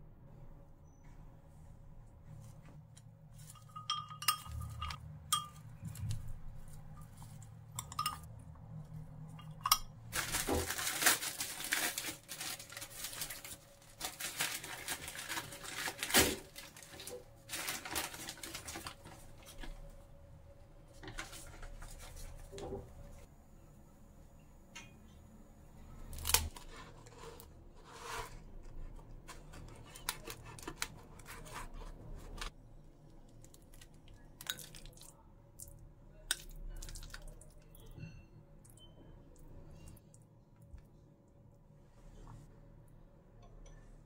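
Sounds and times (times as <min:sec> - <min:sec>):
utensil clinking against glass bowl: 0:03.5 - 0:05.7, 0:07.8 - 0:08.3
paper bag crinkling: 0:10.1 - 0:19.7.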